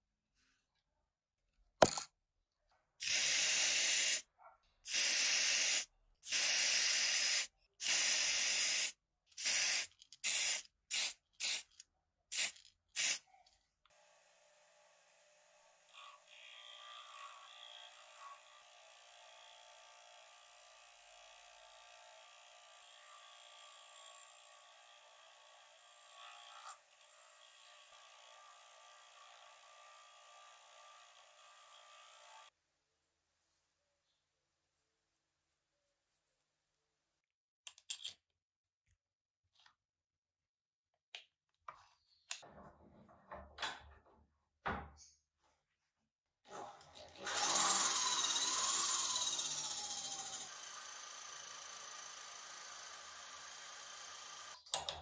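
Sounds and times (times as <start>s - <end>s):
aerosol can spraying: 3.0s - 4.2s, 4.8s - 11.7s, 12.3s - 13.2s
bench buffing motor running: 47.2s - 54.6s.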